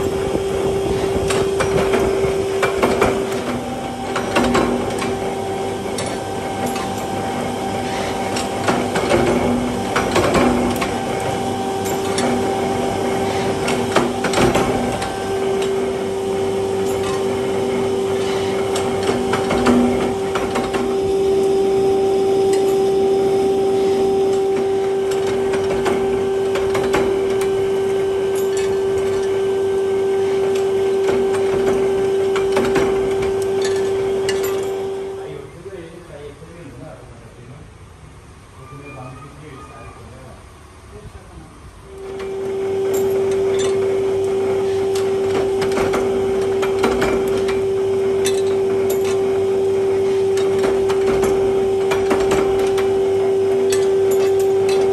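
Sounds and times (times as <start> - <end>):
power press humming: 0.0 - 36.3, 41.7 - 54.9
sharp metal clanks: 30.3 - 35.1.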